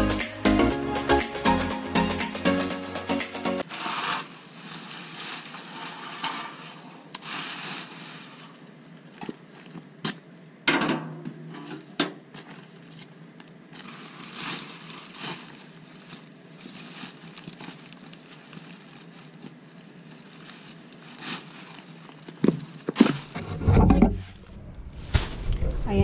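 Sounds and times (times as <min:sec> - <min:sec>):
plastic bag of leaves rustling: 0:03.6 - 0:09.8, 0:12.4 - 0:23.4, 0:24.2 - 0:26.0
bag crackling and bumping: 0:03.6 - 0:10.2, 0:12.3 - 0:23.4.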